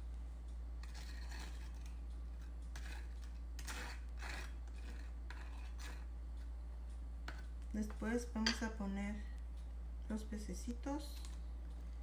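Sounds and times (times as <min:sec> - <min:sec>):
steady low hum: 0:00.0 - 0:12.0
knife scraping on cracker: 0:00.8 - 0:06.1.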